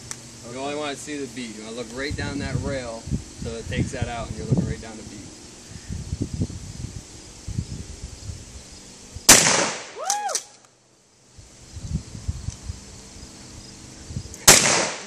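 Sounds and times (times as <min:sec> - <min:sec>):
shotgun shot: 0:09.3 - 0:10.0, 0:14.4 - 0:15.0.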